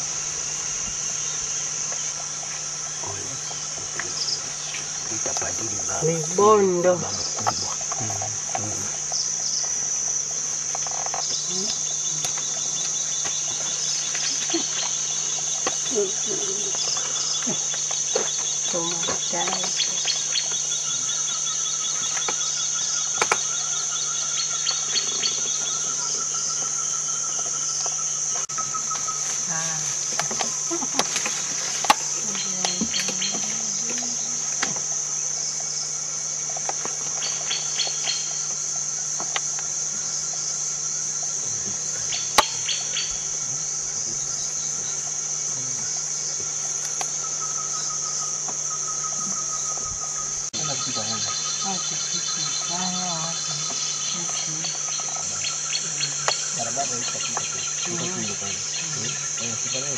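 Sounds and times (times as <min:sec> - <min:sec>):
shrill insect chorus: 0:00.0 - 0:59.9.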